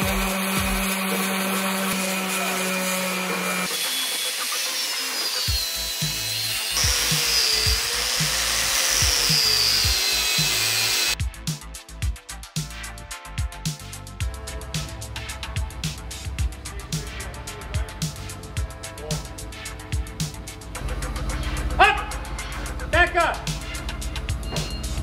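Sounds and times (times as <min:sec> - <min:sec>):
music beat: 0:00.0 - 0:01.7, 0:05.5 - 0:25.0
angle grinder grinding steel: 0:00.0 - 0:11.2
electric sander humming: 0:00.0 - 0:11.2.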